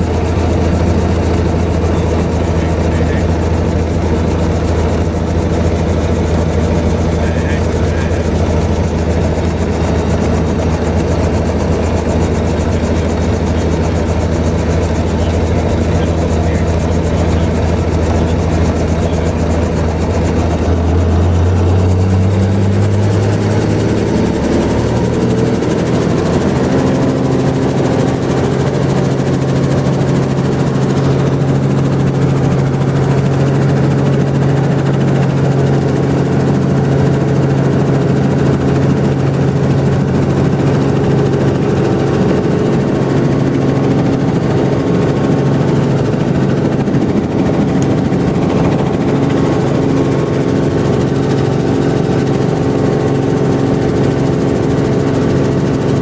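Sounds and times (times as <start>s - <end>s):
helicopter turbine and rotor: 0.0s - 56.0s.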